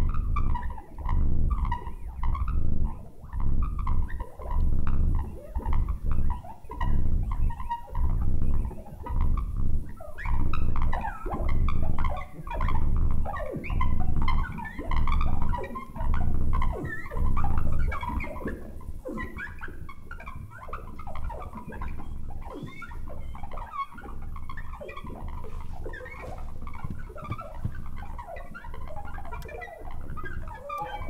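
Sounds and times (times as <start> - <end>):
pulsing low throb: 0.0 - 31.0
squeaky gliding chirps: 0.0 - 31.0.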